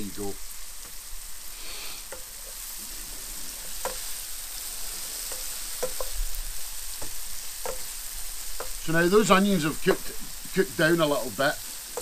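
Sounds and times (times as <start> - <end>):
onions sizzling in butter: 0.0 - 12.0
wooden spatula knocking pan: 2.1 - 2.7, 3.6 - 10.4, 11.6 - 12.0.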